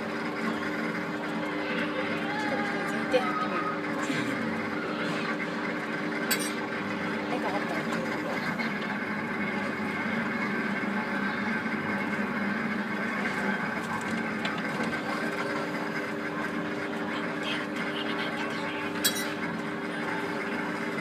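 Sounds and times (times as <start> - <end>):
ride drive mechanism whine: 0.0 - 21.0.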